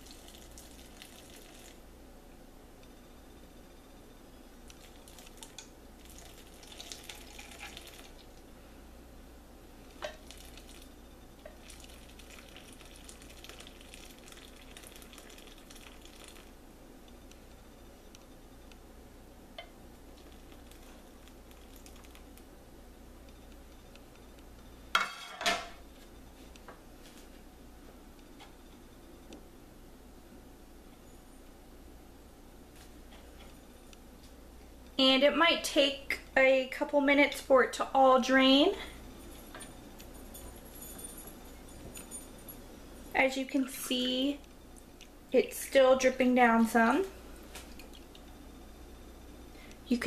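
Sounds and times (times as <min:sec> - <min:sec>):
liquid pouring hiss: 0:00.0 - 0:01.8, 0:04.8 - 0:08.3, 0:11.5 - 0:16.5.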